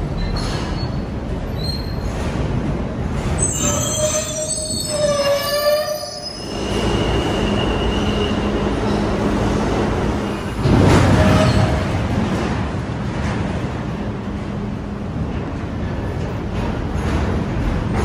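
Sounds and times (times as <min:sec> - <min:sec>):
standing train hum: 0:00.0 - 0:18.0
train wheels squealing: 0:00.2 - 0:02.2, 0:03.4 - 0:09.2.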